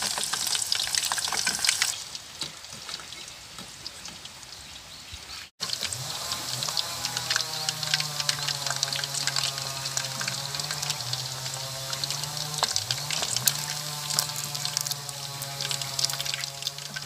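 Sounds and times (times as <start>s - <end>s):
meat sizzling in hot oil: 0.0s - 2.3s, 5.6s - 17.0s.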